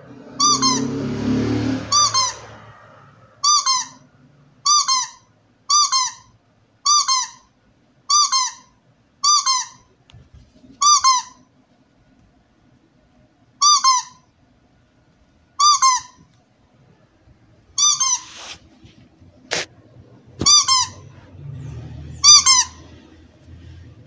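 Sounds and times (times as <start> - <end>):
squeaky dog toy: 0.3 - 1.0, 1.9 - 2.6, 3.4 - 10.0, 10.8 - 11.5, 13.6 - 14.4, 15.6 - 16.3, 17.8 - 18.6, 20.4 - 21.3, 22.1 - 23.1
muffled noisy rumble: 18.6 - 24.0.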